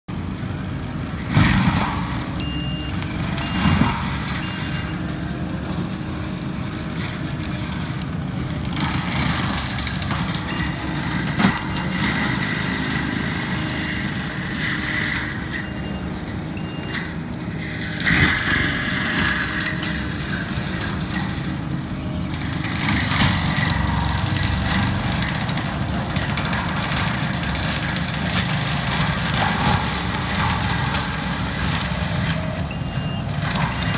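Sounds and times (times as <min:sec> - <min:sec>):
diesel engine running under load: 0:00.1 - 0:33.9
mulcher grinding through brush: 0:00.1 - 0:33.9
wood cracking: 0:01.3 - 0:33.9
back-up alarm beeps: 0:02.4 - 0:05.0, 0:32.4 - 0:33.4.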